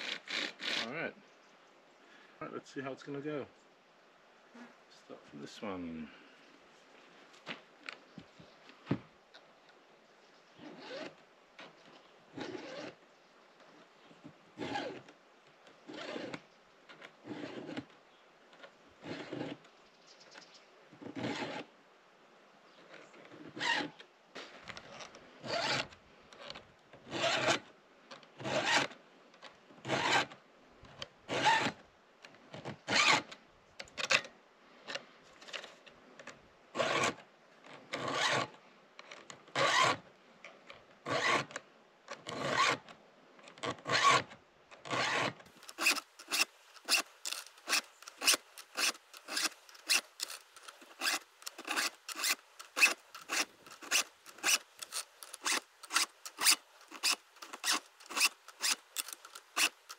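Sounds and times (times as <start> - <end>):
file rasping on chainsaw teeth: 0.0 - 0.9, 44.9 - 59.9.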